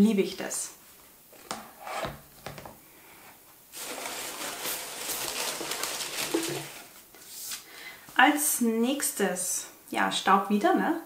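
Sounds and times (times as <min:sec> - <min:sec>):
rustling box packaging: 0:03.7 - 0:07.6.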